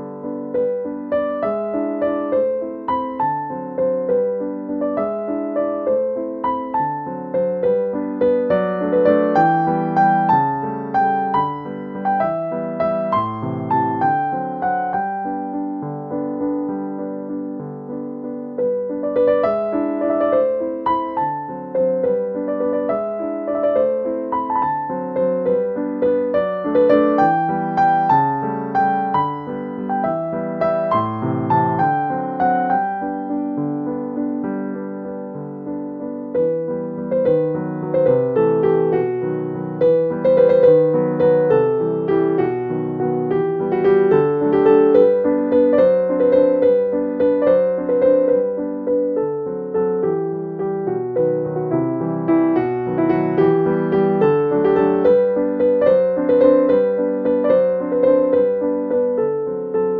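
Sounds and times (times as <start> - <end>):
piano music: 0.0 - 59.9.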